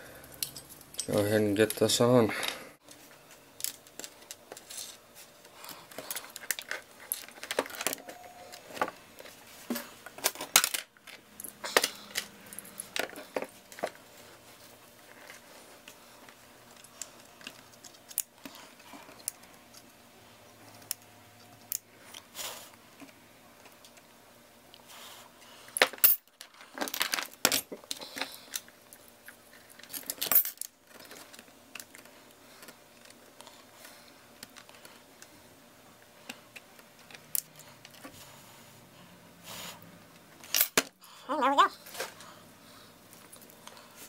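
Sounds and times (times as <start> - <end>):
faint steady hum: 0.0 - 44.0
metallic clicks and clinks: 0.2 - 1.8.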